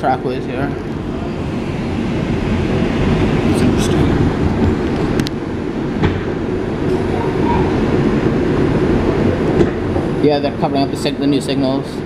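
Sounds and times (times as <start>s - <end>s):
subway wheels rumbling on rail: 0.0s - 12.0s.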